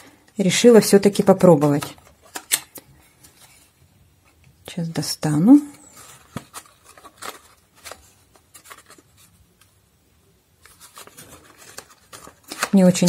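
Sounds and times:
cardboard packaging rustling: 0:01.0 - 0:03.8, 0:05.8 - 0:09.7, 0:10.6 - 0:13.0.

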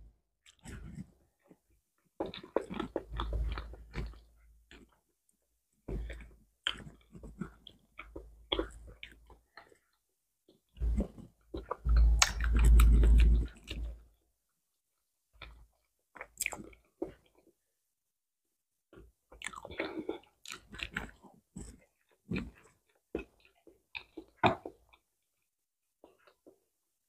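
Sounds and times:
person chewing banana: 0:02.2 - 0:05.0, 0:05.9 - 0:10.0, 0:10.8 - 0:14.0, 0:16.2 - 0:17.5, 0:19.3 - 0:25.1.

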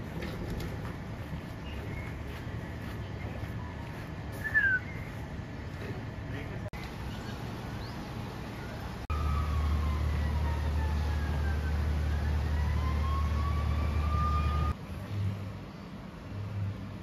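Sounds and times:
bird chirp: 0:01.4 - 0:03.5, 0:07.0 - 0:08.8
distant siren wailing: 0:08.6 - 0:14.8.

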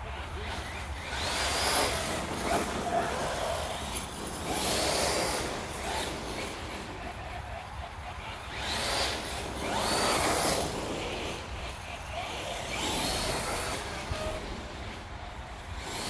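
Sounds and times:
electric motor whining: 0:07.9 - 0:16.0.

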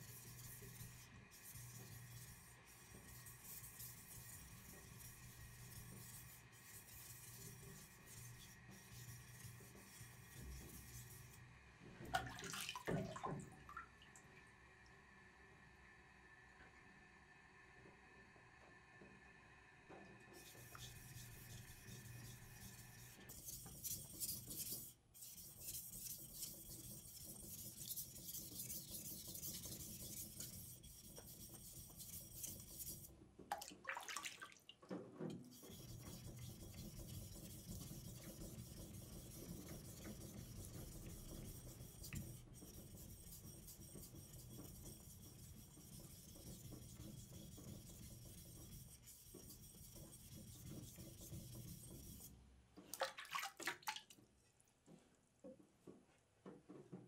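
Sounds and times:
knife scraping on whetstone: 0:20.4 - 0:33.1.

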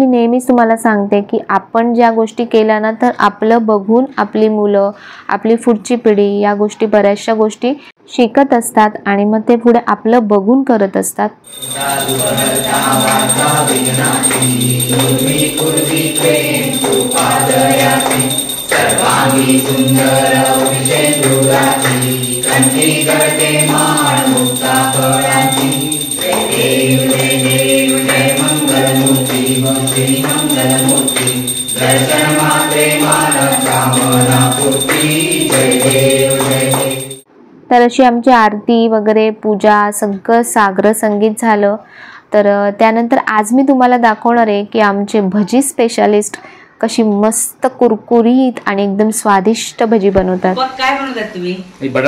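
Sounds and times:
group singing: 0:11.5 - 0:37.2
rhythmic hand-clapping: 0:11.5 - 0:37.2.

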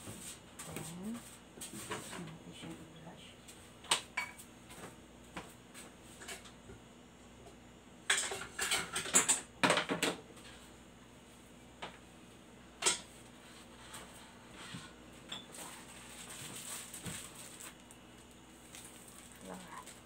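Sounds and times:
kitchen utensils and pans clattering: 0:08.1 - 0:10.0.

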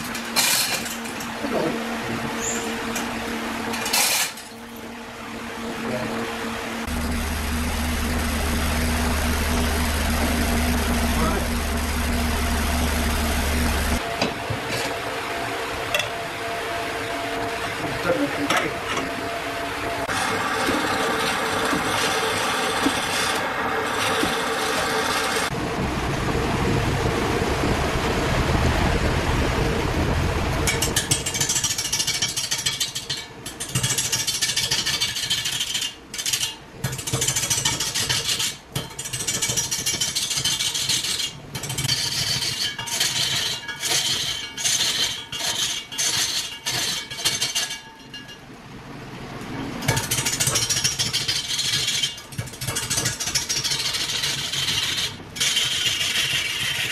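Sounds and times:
wood lathe motor running: 0:06.6 - 0:14.0, 0:16.9 - 0:25.9
turning tool scraping wood: 0:50.1 - 0:56.9.

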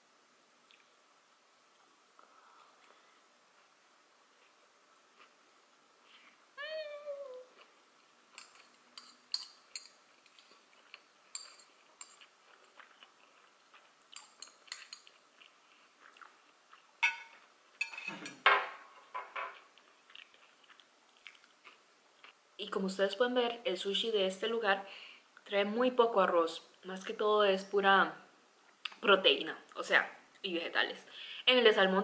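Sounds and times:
chewing: 0:04.4 - 0:05.4, 0:07.3 - 0:18.4, 0:19.5 - 0:22.4
chopsticks clicking on dishes: 0:08.4 - 0:12.3, 0:14.2 - 0:15.2.

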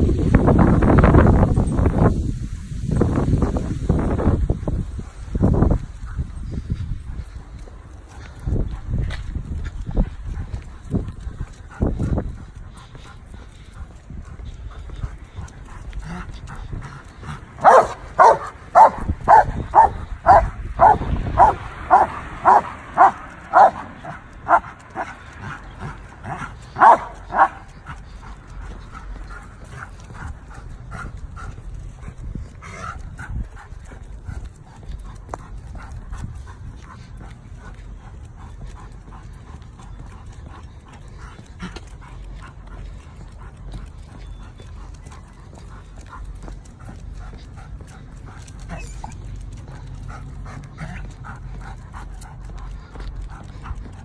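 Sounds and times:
footsteps on pavement: 0:00.0 - 0:54.0
dog barking: 0:17.6 - 0:25.1, 0:26.8 - 0:27.6.

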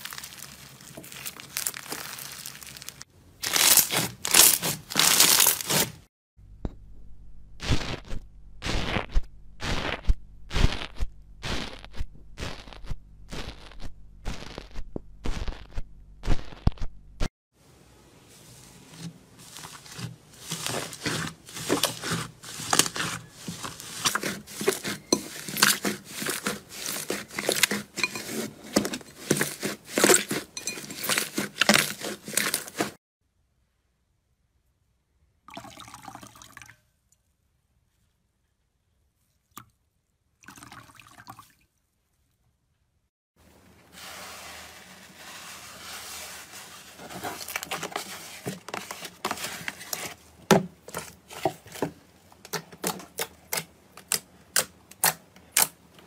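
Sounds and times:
slime crackling and popping: 0:00.0 - 0:05.8
wet squish of slime: 0:00.0 - 0:05.8
tool poking crackling slime: 0:03.5 - 0:06.0, 0:19.7 - 0:33.0.

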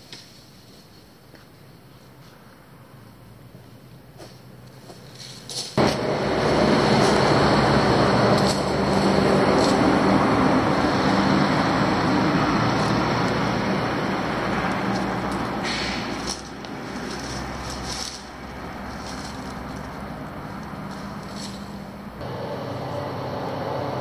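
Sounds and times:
heavy truck driving past: 0:05.8 - 0:24.0.

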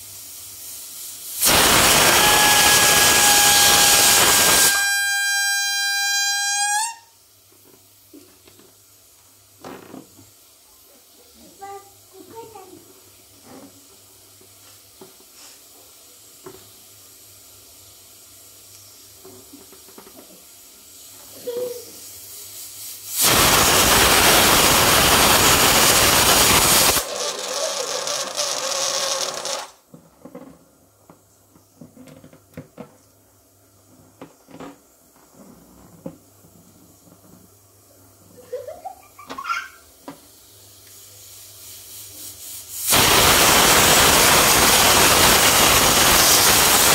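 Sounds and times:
gas hissing under pressure: 0:00.0 - 0:07.0, 0:15.0 - 0:29.7, 0:40.2 - 0:46.9.

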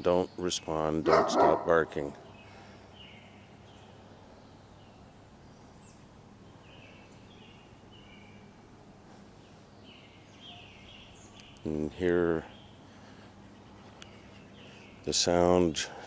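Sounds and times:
faint bird calls: 0:09.2 - 0:15.1.

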